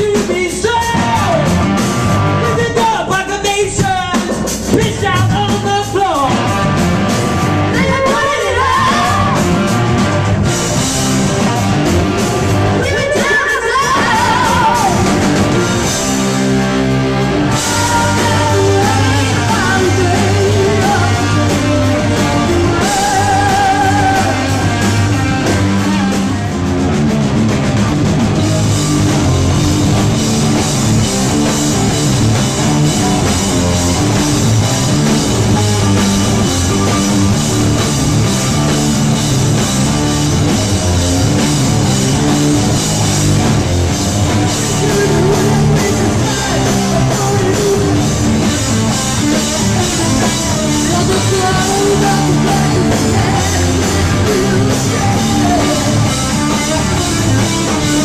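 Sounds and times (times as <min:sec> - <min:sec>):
rock band playing loudly: 0:00.0 - 0:58.0.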